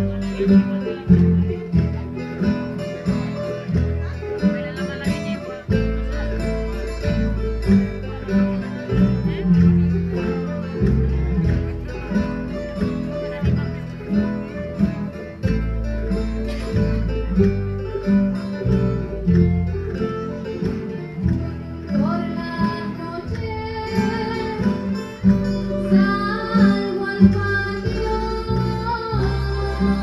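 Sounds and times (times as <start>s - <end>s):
bass line: 0.0s - 30.0s
folk guitars strumming and plucking: 0.0s - 30.0s
person singing: 25.8s - 30.0s.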